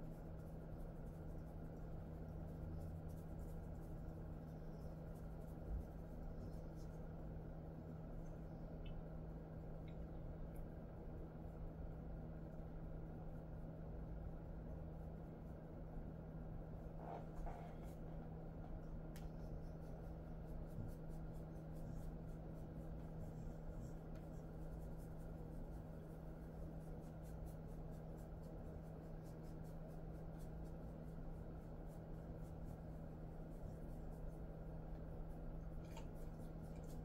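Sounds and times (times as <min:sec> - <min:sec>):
hands rubbing dog fur: 0:00.0 - 0:09.1, 0:16.7 - 0:37.0
steady low hum: 0:00.0 - 0:37.0.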